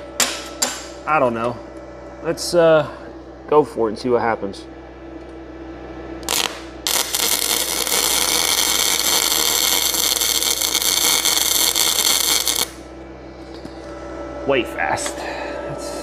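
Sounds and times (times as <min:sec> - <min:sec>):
welding arc crackling: 0:06.2 - 0:12.9.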